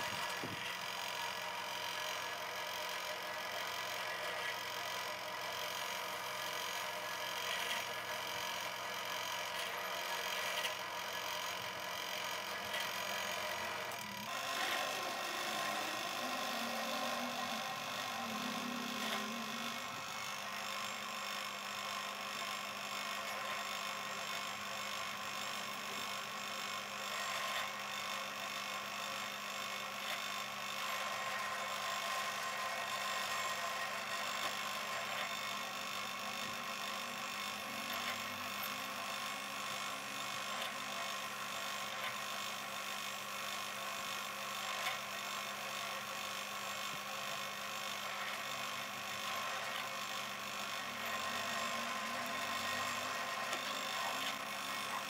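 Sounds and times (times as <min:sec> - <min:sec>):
drill press motor humming: 0:00.0 - 0:55.0.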